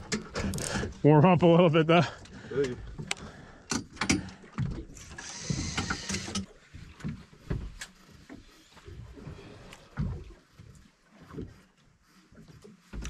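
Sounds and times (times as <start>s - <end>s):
water slapping boat hull: 0.0s - 13.0s
fishing reel clicks: 5.1s - 6.5s.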